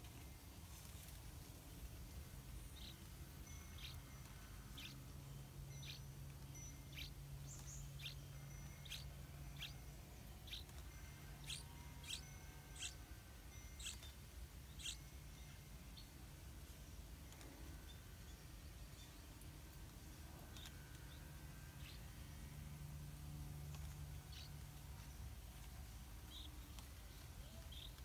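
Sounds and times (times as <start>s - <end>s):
bird chick begging chirps: 3.7s - 15.1s.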